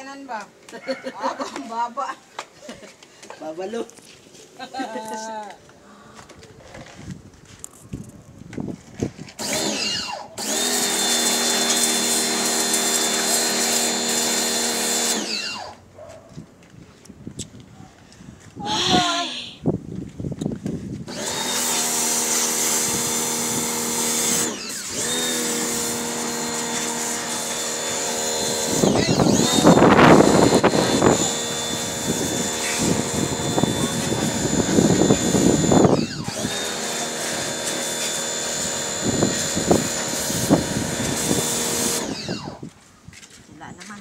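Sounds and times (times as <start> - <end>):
pressure washer motor whine: 9.4 - 15.8, 21.1 - 42.7
hissing water spray: 10.8 - 15.2, 21.6 - 28.8, 36.3 - 42.0.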